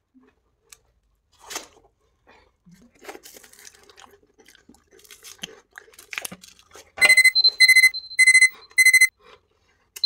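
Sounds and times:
timer alarm double-tone beeps: 7.0s - 9.1s.

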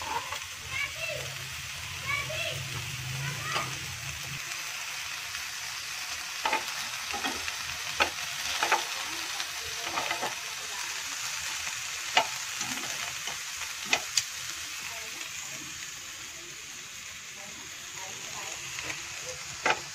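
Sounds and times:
food sizzling in frying pan: 0.0s - 19.9s
metal tongs tapping pan: 6.4s - 7.4s, 8.0s - 9.0s.

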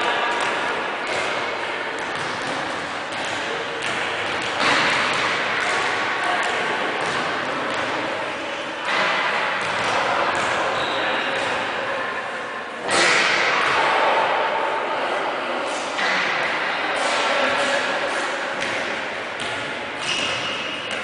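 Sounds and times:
handballs thudding on court: 2.0s - 8.0s, 18.6s - 21.0s.

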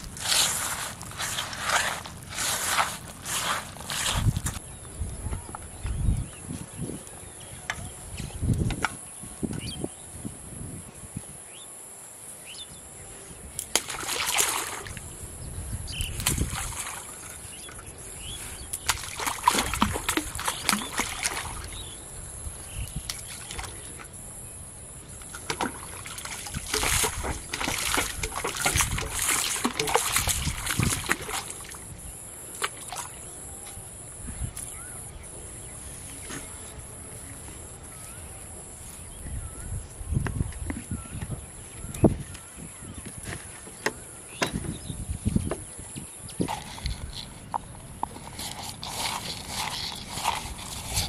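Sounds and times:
water splashing and sloshing: 0.0s - 4.6s, 13.6s - 15.3s, 16.0s - 22.0s, 22.6s - 24.3s, 25.0s - 33.4s.

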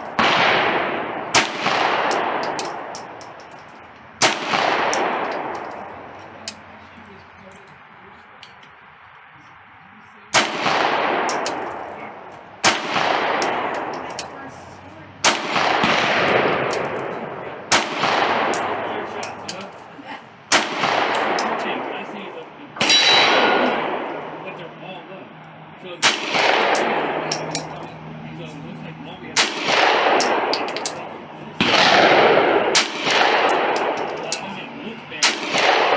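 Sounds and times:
pistol shots echoing: 0.0s - 3.3s, 4.2s - 6.6s, 10.3s - 14.4s, 15.2s - 19.8s, 20.5s - 22.1s, 22.8s - 24.4s, 26.0s - 27.8s, 29.4s - 35.9s.

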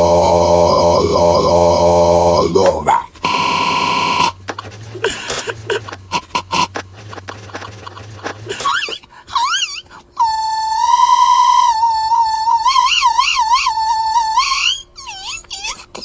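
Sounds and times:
held drone: 0.0s - 9.0s
crackling stuttering audio fragments: 3.2s - 8.9s
warbling whistle-like tones: 10.2s - 15.0s.

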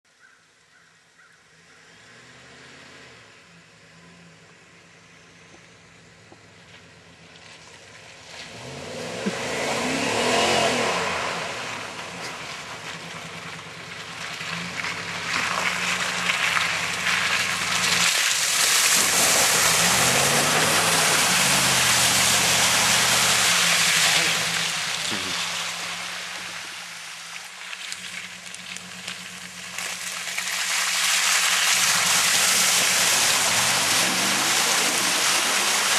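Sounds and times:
spinning tyres throwing mud: 5.5s - 35.9s
pickup truck engine revving: 8.5s - 27.3s, 27.9s - 35.9s.

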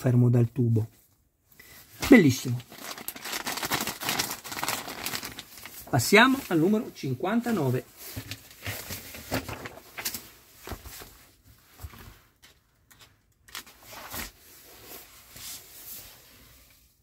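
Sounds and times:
magazine pages rustling: 2.0s - 12.2s, 13.4s - 15.6s.

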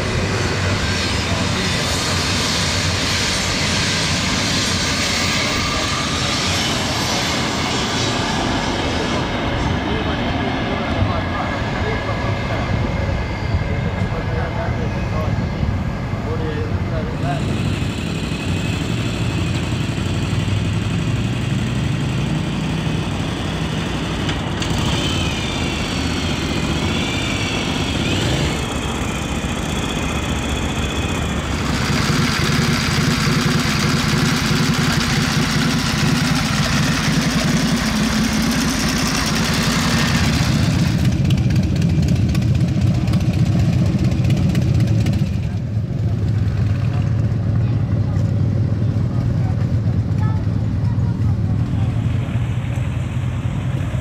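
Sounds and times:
motorcycle engines idling: 16.2s - 54.0s.

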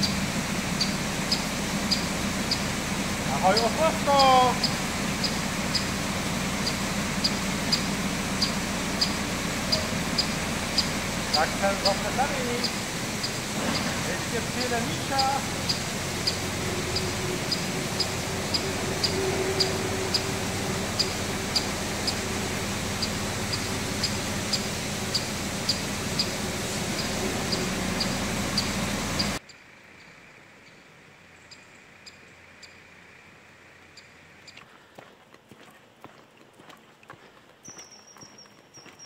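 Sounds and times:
river water rushing: 0.0s - 29.4s.

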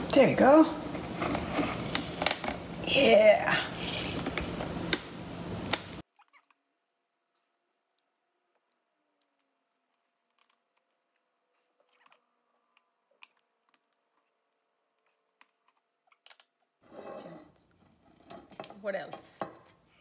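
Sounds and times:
rustling scrape: 0.9s - 2.4s.

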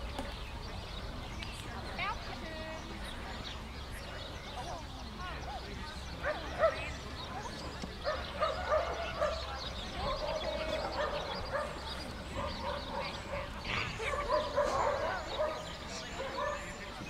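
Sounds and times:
dogs barking and yipping: 6.2s - 7.0s, 8.0s - 16.9s.

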